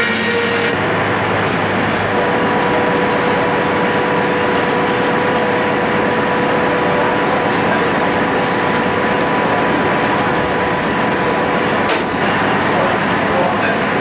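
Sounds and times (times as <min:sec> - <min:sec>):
sawmill saw cutting log: 0:00.0 - 0:07.1.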